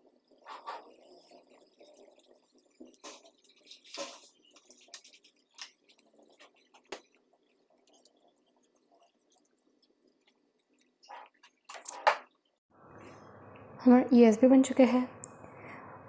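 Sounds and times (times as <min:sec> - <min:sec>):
paper strip crinkling: 0:03.4 - 0:07.1.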